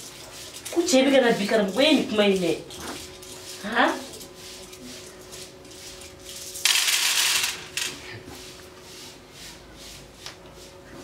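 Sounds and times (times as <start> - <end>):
shells clattering on glass table: 6.6 - 8.0.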